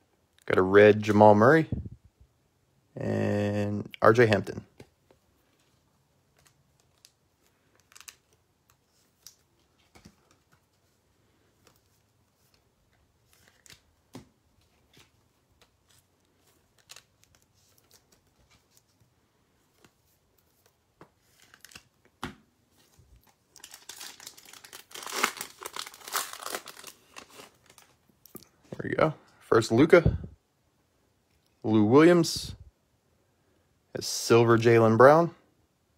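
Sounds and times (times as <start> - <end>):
foil pack tearing and crinkling: 23.6 - 27.9.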